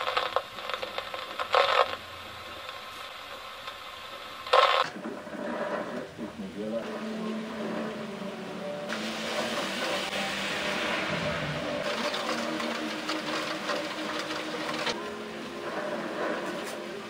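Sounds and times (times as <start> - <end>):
heavy rain and hail on window: 0.0 - 17.0
low rumble: 5.0 - 16.5.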